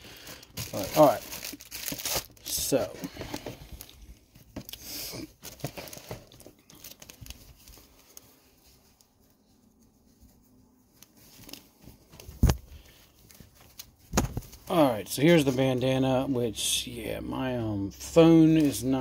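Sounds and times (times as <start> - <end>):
plastic wrapping crinkling: 0.0 - 9.4
cloth rustling: 5.4 - 14.8.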